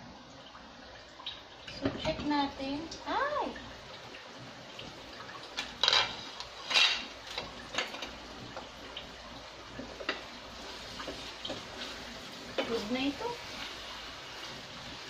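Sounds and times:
spatula scraping in a metal pot: 5.8 - 7.5.

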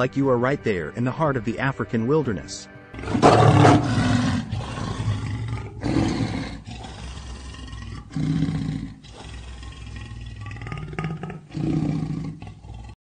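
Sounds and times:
lion roaring: 3.0 - 13.0.

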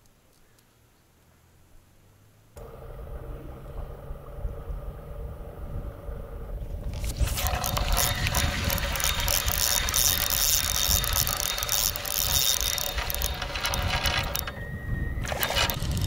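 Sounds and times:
wind rumble on microphone: 2.6 - 16.0
fishing reel gear clicks: 6.8 - 14.6, 15.2 - 16.0.

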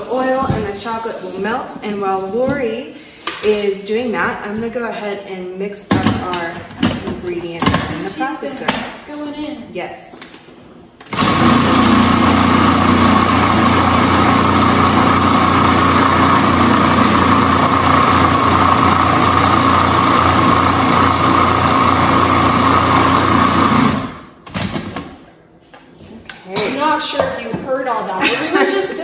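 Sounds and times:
food processor running: 11.1 - 24.4.

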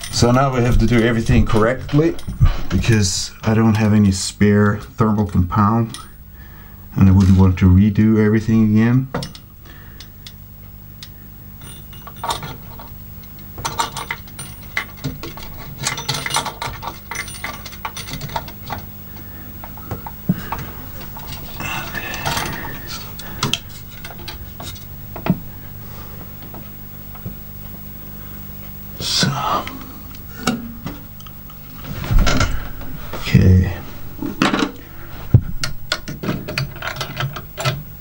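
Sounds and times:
low steady hum: 0.0 - 38.0
metal and plastic clicks and rattles: 13.6 - 18.8, 35.6 - 37.8.

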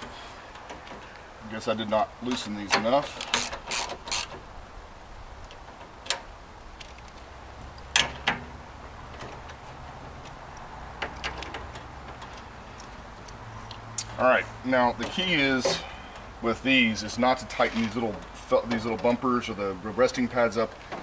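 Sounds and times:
metal and glass clicks: 5.4 - 13.8.

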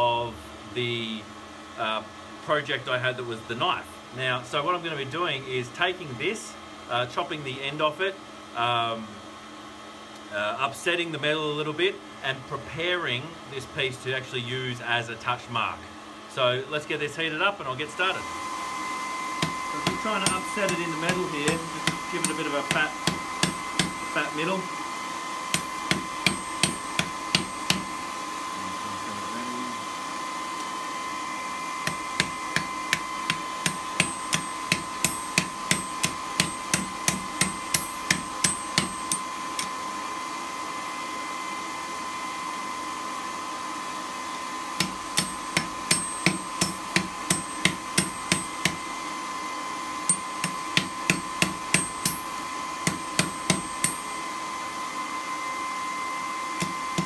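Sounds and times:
hammer striking steel on anvil: 19.4 - 24.1, 25.5 - 27.9, 31.8 - 39.7, 44.8 - 48.8, 50.1 - 54.2, 56.6 - 57.0.

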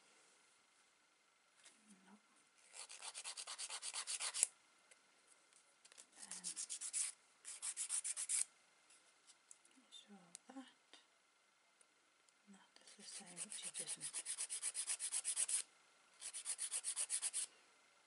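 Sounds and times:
nail file rasping on fingernails: 2.7 - 4.5, 6.3 - 8.4, 13.1 - 15.6, 16.2 - 17.5.

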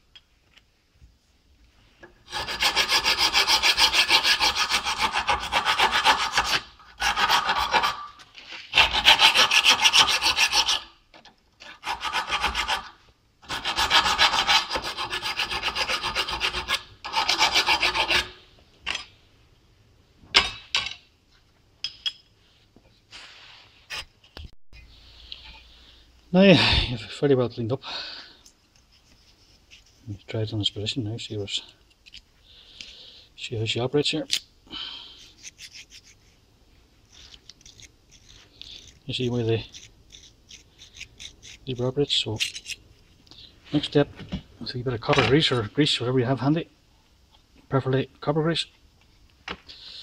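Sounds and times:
file rasping on metal: 2.3 - 11.0, 11.6 - 18.4.

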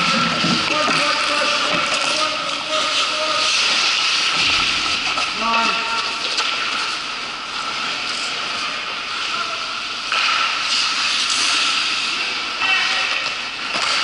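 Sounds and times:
skate blades scraping on ice: 0.0 - 9.4, 10.0 - 14.0.

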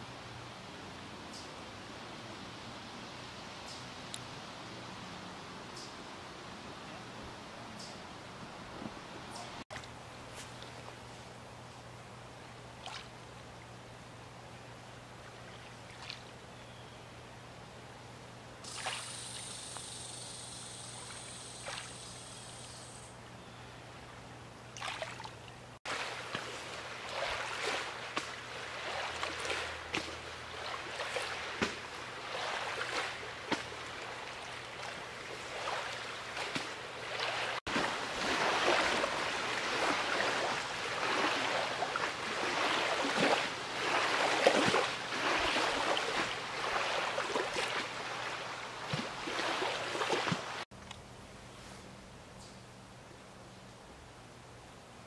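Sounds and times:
waves lapping against rocks: 24.8 - 50.7.

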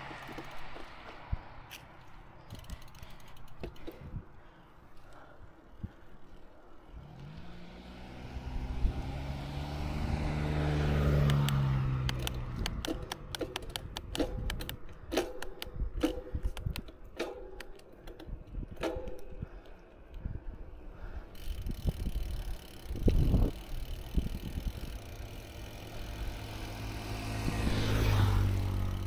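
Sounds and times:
bicycle clicks and rattles: 0.0 - 7.5, 10.5 - 29.0
car passing by: 6.9 - 12.6, 26.2 - 29.0.

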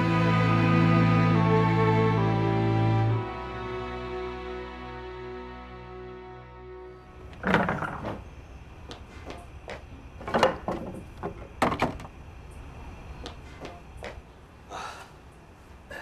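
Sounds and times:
wooden door knocks and clunks: 10.2 - 12.1.

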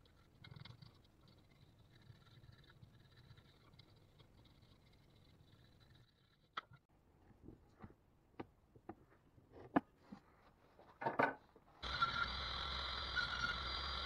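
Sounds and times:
wooden workpieces knocking: 11.0 - 11.5.

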